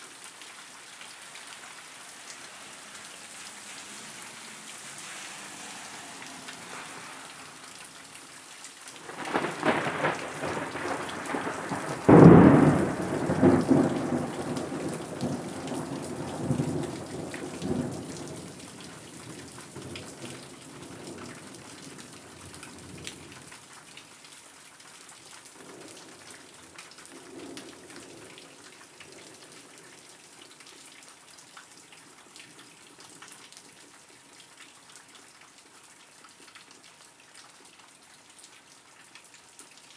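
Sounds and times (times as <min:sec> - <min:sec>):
rain falling on leafy trees: 0:00.0 - 0:39.9
thunder cracking and rumbling: 0:09.0 - 0:18.6.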